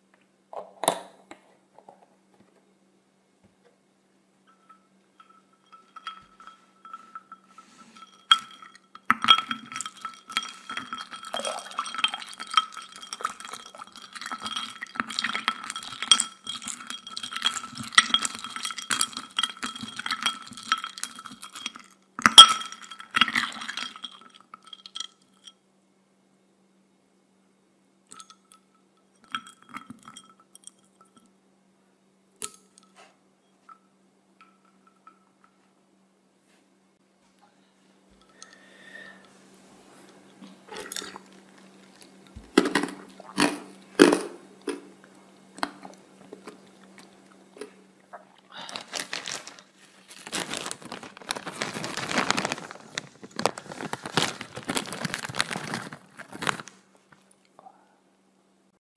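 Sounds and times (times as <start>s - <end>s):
porcelain bowl ringing: 4.4s - 21.6s
fingers clinking on porcelain bowl: 4.5s - 25.5s.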